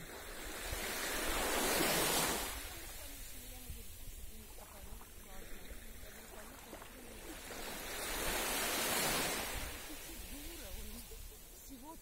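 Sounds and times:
wave washing onto sandy beach: 0.0s - 12.0s.

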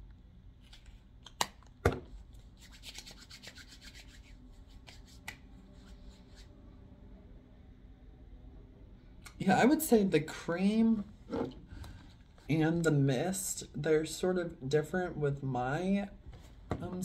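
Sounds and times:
hands rubbing cream: 2.4s - 6.5s.

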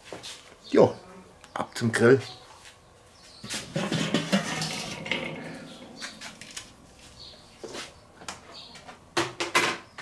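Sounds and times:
metal grill lid opening: 3.4s - 6.9s.

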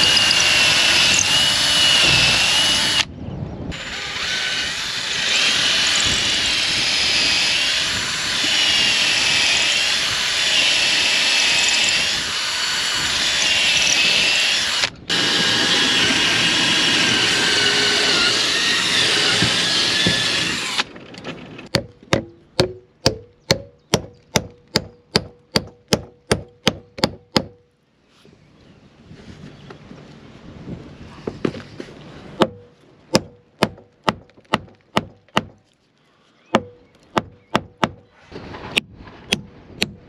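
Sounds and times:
power drill whining: 0.0s - 3.1s, 3.7s - 20.9s.

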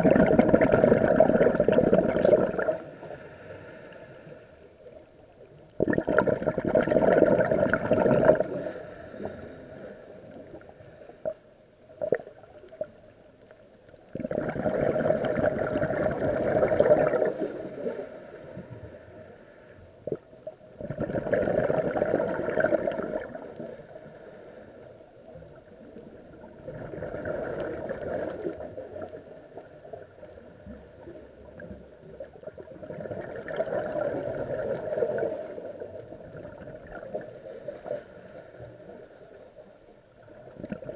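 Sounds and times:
underwater bubbles rushing: 0.0s - 3.1s, 5.3s - 19.0s, 20.0s - 40.9s
diver breathing through regulator: 2.5s - 4.7s
faint ticks: 8.4s - 14.2s, 23.1s - 26.7s, 27.3s - 32.6s.

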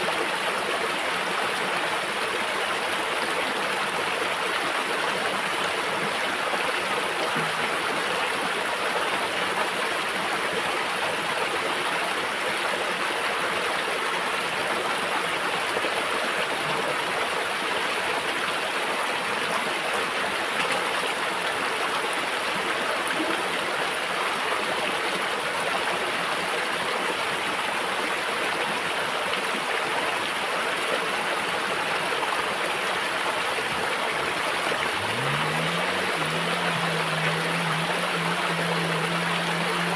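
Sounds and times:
water flowing over stones: 0.0s - 39.9s.

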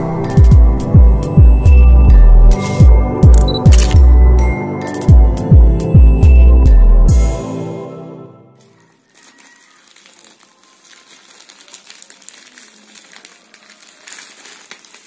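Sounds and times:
plastic bag crinkling: 8.6s - 15.0s.

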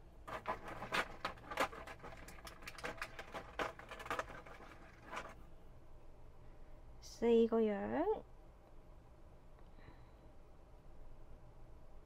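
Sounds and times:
plastic clicks and crinkles: 0.3s - 5.4s.

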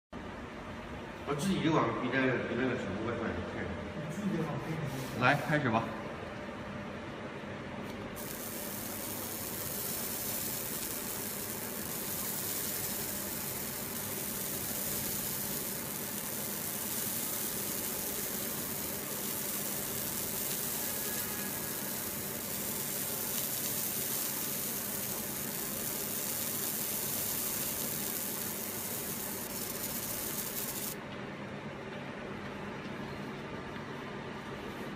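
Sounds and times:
low machine hum: 0.2s - 34.9s
laser burning hiss: 8.2s - 31.0s.

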